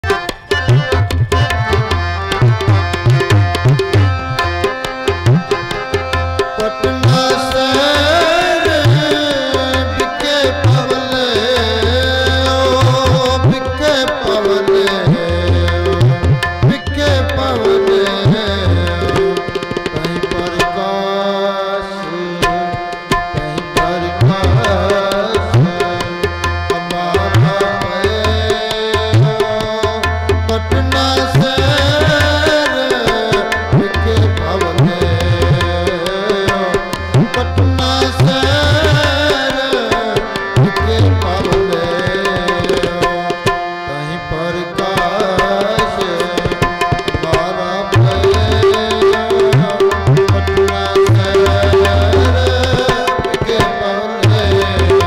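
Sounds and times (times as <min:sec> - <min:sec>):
harmoniums playing chords: 0:00.0 - 0:55.0
man singing: 0:00.0 - 0:55.0
tabla beating rhythm: 0:00.0 - 0:55.0.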